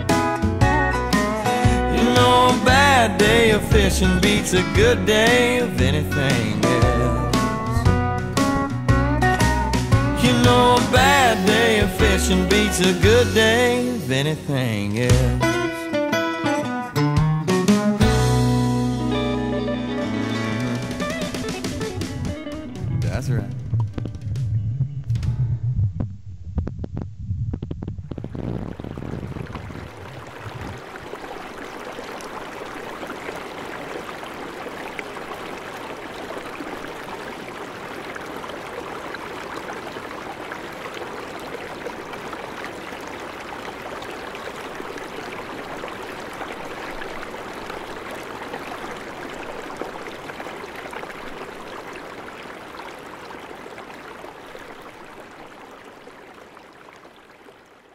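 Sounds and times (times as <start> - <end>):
song with drums: 0.0 - 13.4, 17.2 - 19.2, 20.2 - 24.5
stream water rushing: 0.0 - 14.7, 28.8 - 57.9.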